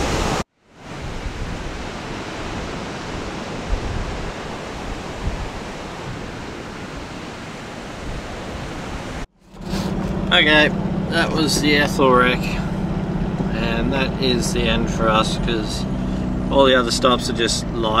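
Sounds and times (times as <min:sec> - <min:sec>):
wind buffeting microphone: 0:00.0 - 0:09.2
surf rushing: 0:00.0 - 0:18.0.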